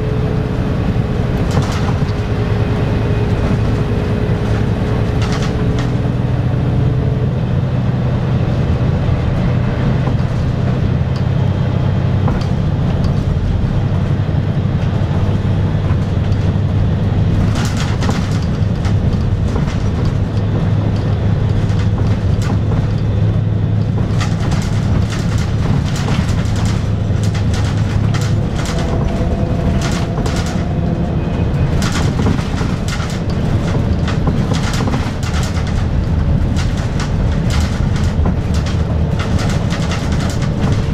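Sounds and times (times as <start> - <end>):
bus diesel engine drone: 0.0 - 40.9
road noise: 0.0 - 40.9
cabin fittings rattling: 1.3 - 2.5, 14.9 - 40.9.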